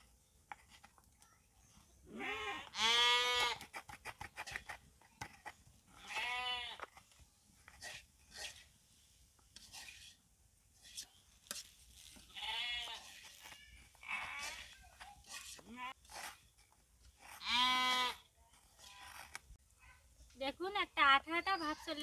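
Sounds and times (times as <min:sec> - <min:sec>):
goat bleating: 0:02.1 - 0:03.6, 0:06.0 - 0:06.8, 0:12.3 - 0:14.8, 0:17.4 - 0:18.2
metal spatula scraping pan: 0:09.6 - 0:10.2, 0:10.8 - 0:16.5.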